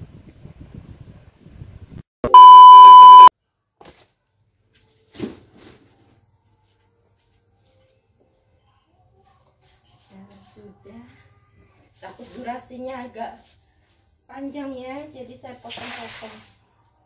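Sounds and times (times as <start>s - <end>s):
electronic beep: 2.3s - 3.3s.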